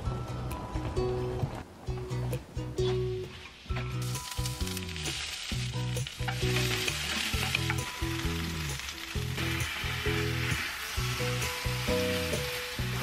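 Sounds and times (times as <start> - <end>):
background music: 0.0 - 13.0
hot oil sizzling in a frying pan: 4.0 - 13.0.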